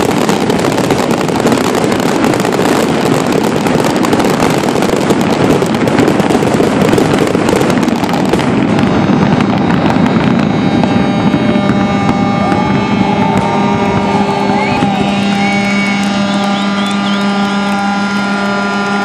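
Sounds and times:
fireworks crackling: 0.0s - 19.0s
steady hum with tones: 7.1s - 19.0s.

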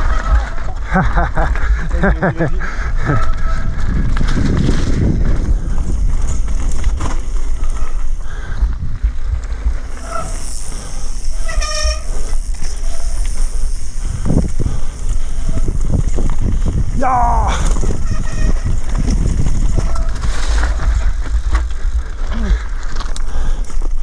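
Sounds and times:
bike rattling over bumps: 0.0s - 24.0s
wind buffeting microphone: 0.0s - 24.0s
tyres crunching over stones: 12.0s - 24.0s.

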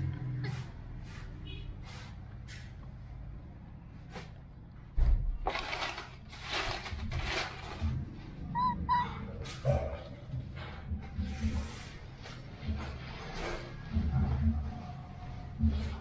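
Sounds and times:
baby monkey squeaking: 8.5s - 9.5s.

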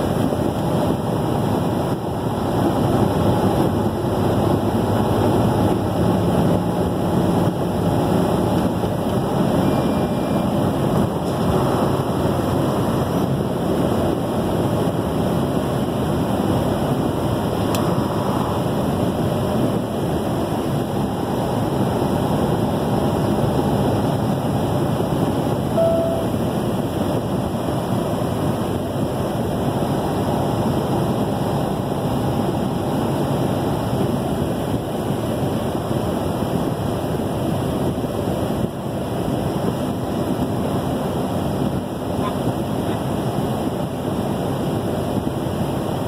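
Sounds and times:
road and wind noise in car: 0.0s - 46.0s
short tone: 9.4s - 10.7s, 25.7s - 26.5s.

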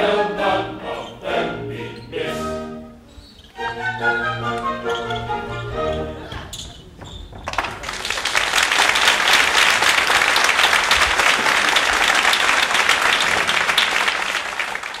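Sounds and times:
audience clapping: 7.4s - 15.0s.

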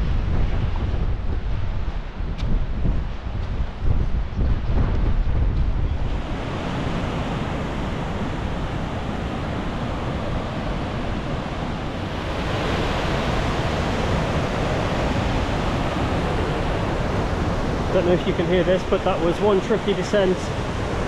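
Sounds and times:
wind on microphone: 0.0s - 21.0s
fast-flowing stream rushing: 6.1s - 21.0s.

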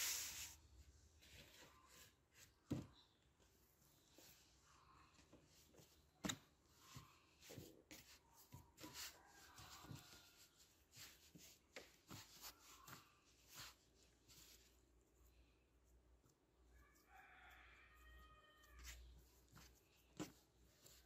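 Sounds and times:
hands kneading dough on a board: 0.0s - 21.0s.

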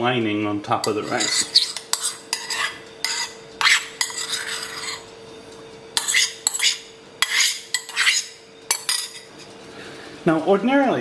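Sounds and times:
metal spoon scraping ceramic bowl: 0.8s - 5.1s, 6.0s - 9.4s.

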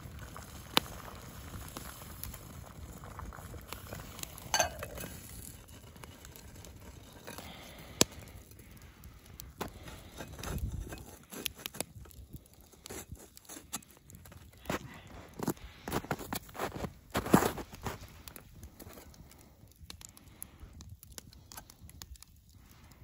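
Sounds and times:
campfire crackling and popping: 0.0s - 23.0s
pot thudding and crunching snow: 0.2s - 8.3s, 9.5s - 19.0s
metal lid clinking on pot: 4.5s - 5.0s.

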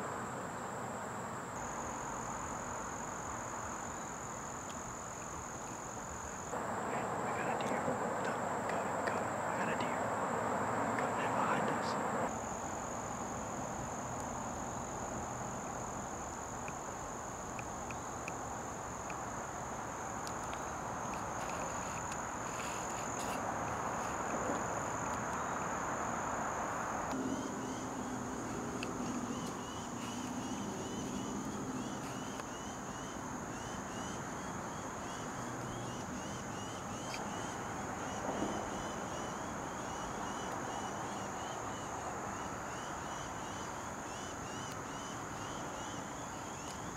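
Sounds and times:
insect chirping: 0.0s - 46.9s
insects droning: 0.0s - 46.9s.

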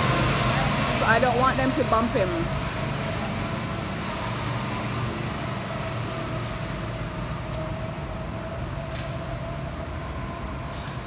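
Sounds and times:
go-kart engines droning: 0.0s - 11.0s.

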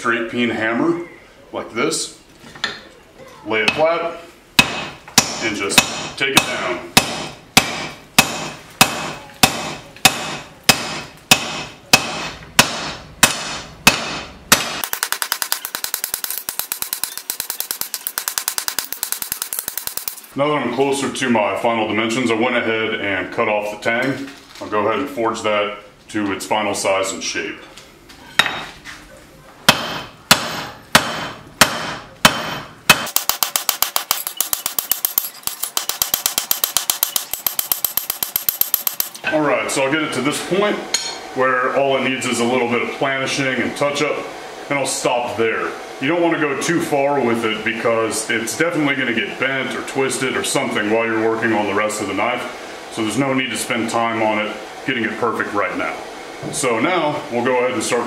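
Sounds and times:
hammer striking steel on anvil: 4.6s - 20.3s, 29.7s - 39.2s.

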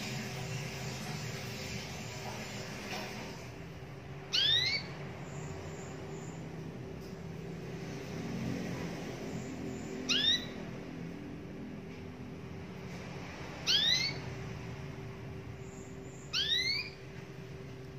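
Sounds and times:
steady low hum: 0.0s - 17.9s
canary whistled call notes: 4.3s - 4.9s, 9.8s - 10.6s, 13.6s - 14.3s, 16.2s - 17.0s.

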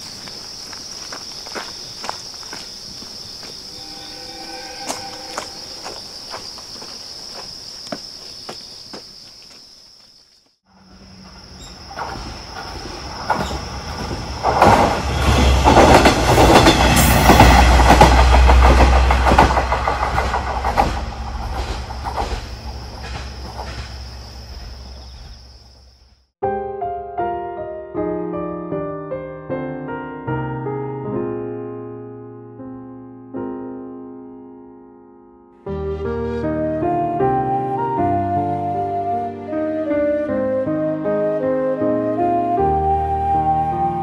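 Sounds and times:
footsteps: 0.0s - 10.6s
insects trilling: 0.0s - 15.2s, 21.0s - 26.3s
diesel railcar passing: 3.4s - 6.9s, 10.7s - 26.0s
wheels clacking over rail joints: 11.6s - 25.3s.

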